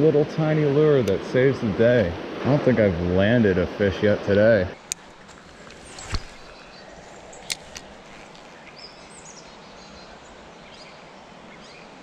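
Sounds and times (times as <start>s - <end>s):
outdoor background hiss: 0.0s - 12.0s
birds chirping: 4.7s - 12.0s
sharp clicks: 7.3s - 8.4s.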